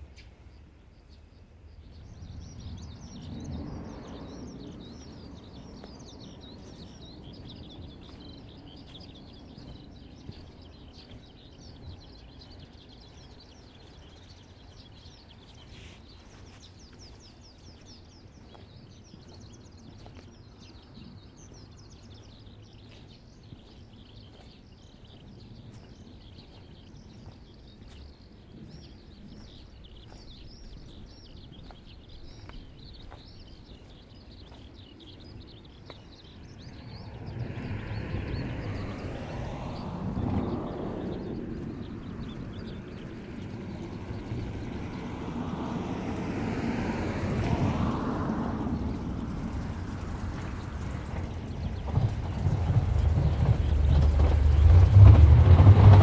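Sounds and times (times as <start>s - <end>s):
low rumble: 48.6s - 56.0s.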